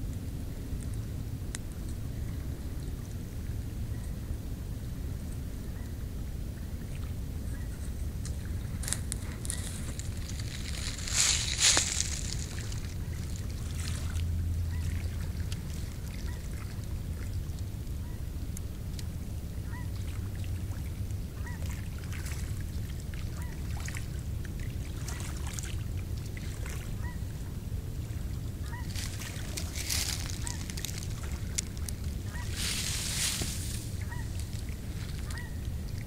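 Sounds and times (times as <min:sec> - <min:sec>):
steady low rumble: 0:00.0 - 0:36.0
distant waterfowl calling: 0:07.5 - 0:18.3, 0:19.5 - 0:24.2, 0:26.5 - 0:36.0.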